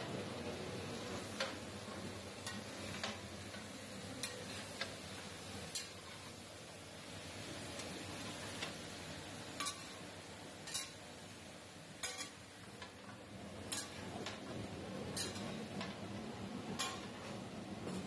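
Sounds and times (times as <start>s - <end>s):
vegetables sizzling: 0.0s - 18.0s
metal ladle clinking on wok: 10.6s - 11.0s.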